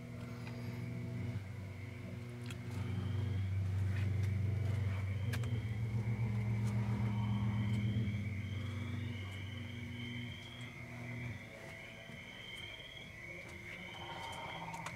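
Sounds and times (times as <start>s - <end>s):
low droning hum: 0.0s - 14.9s.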